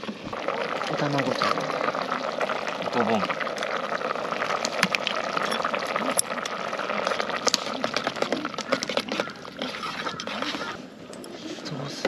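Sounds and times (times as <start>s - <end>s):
pot bubbling: 0.0s - 12.0s.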